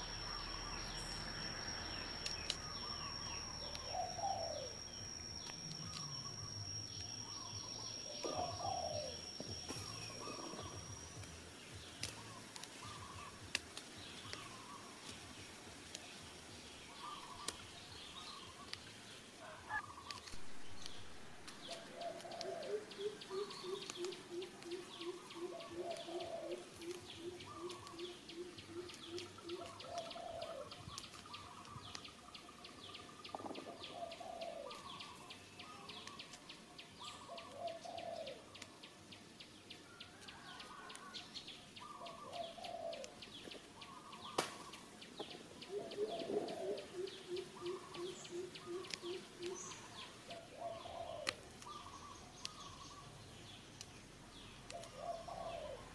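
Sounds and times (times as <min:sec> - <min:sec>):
bird cooing: 0:00.0 - 0:11.3, 0:12.0 - 0:13.5, 0:16.9 - 0:18.8, 0:19.4 - 0:20.2, 0:21.5 - 0:36.4, 0:37.0 - 0:38.6, 0:41.8 - 0:53.1, 0:54.7 - 0:55.9
high ticking chatter: 0:00.0 - 0:13.7
bird chirps: 0:00.0 - 0:55.9.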